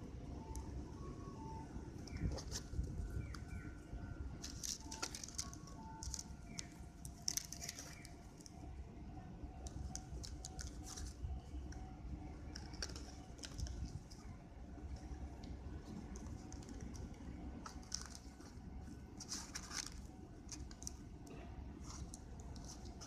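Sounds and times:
low steady rumble: 0.0 - 23.0
paper and cardboard crinkling: 2.1 - 3.4, 4.4 - 8.5, 9.8 - 11.5, 12.5 - 14.3, 15.8 - 21.0, 21.8 - 23.0.

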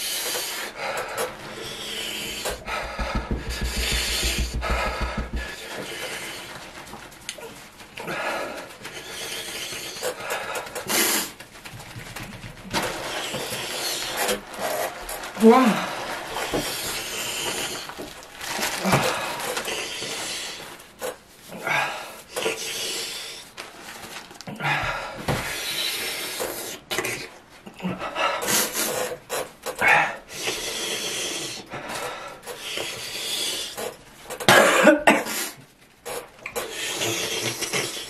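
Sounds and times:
heavy breathing: 0.0 - 6.6
paper tissues rustling: 1.3 - 22.3, 23.0 - 26.7
person sniffing: 1.8 - 5.6
person coughing: 34.5 - 35.3.

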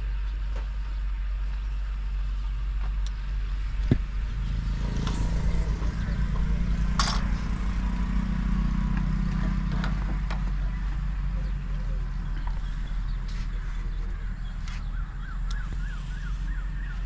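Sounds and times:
engine low rumble: 0.0 - 17.0
rhythmic low pulsing: 0.0 - 17.0.

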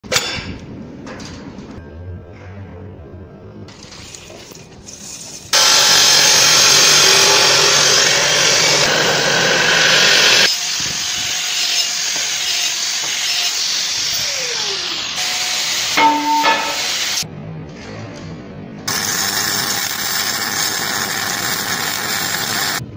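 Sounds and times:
angle grinder: 5.5 - 17.2, 18.9 - 22.8
metal-cutting saw grinding steel: 5.5 - 17.2.

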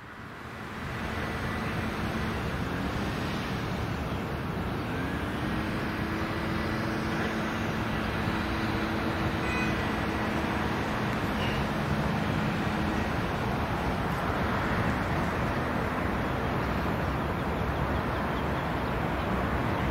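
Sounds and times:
diesel locomotive rumble: 0.0 - 19.9
road traffic noise: 0.0 - 19.9.

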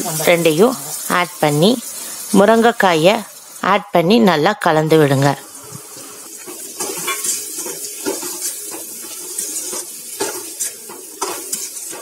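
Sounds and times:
light sizzle: 0.0 - 12.0
spoon scraping metal pan: 6.5 - 12.0.

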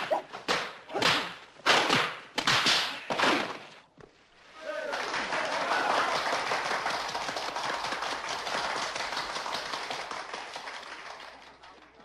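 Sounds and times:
crowd applauding: 4.7 - 12.0.

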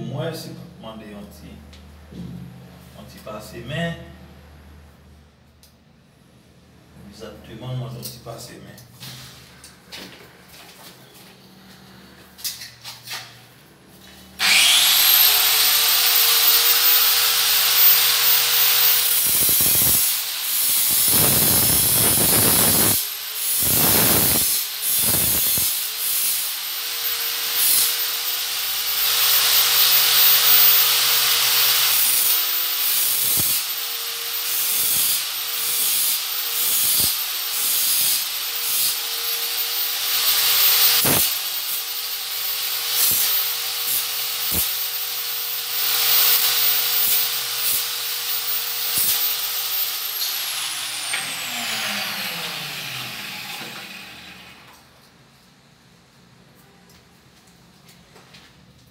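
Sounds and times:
grinding tile trim: 14.4 - 54.7
angle grinder whining: 14.4 - 54.8.

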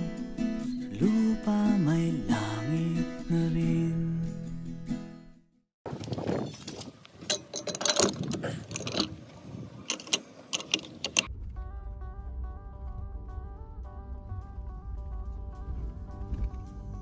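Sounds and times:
mechanical clicking and rattling: 7.3 - 9.2, 9.8 - 11.3.

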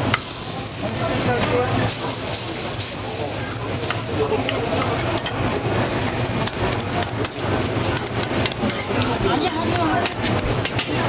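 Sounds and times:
oil sizzling on a griddle: 0.0 - 11.0
metal tongs clicking: 3.9 - 5.4, 6.4 - 7.4, 8.0 - 11.0.

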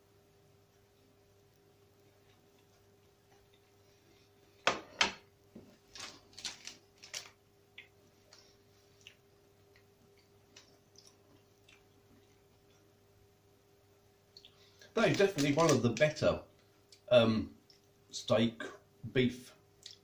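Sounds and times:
low electrical hum: 0.0 - 20.0
plastic wrapper crinkling: 5.8 - 7.4, 14.8 - 16.2.

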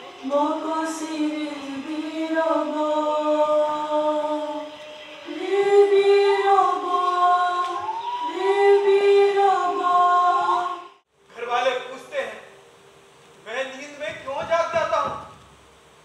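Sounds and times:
voices singing unaccompanied: 0.0 - 11.1.

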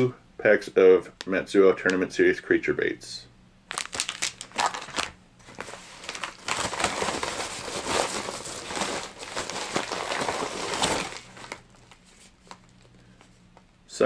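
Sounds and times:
plastic mailer crinkling: 3.7 - 13.3.

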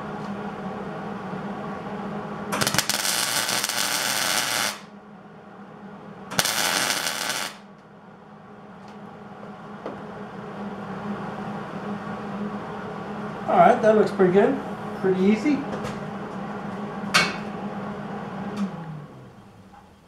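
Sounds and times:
welding arc crackling: 2.5 - 4.9, 6.4 - 7.7.

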